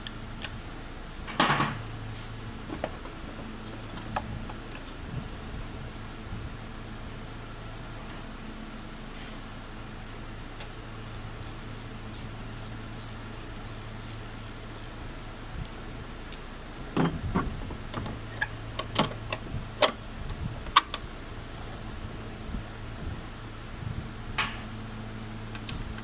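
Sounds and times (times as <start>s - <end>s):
ratchet wrench clicking: 9.6s - 15.8s.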